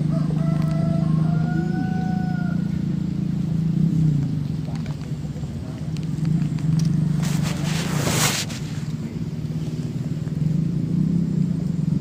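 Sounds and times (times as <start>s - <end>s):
low engine hum: 0.0s - 12.0s
rustling scraping noise: 6.2s - 9.8s.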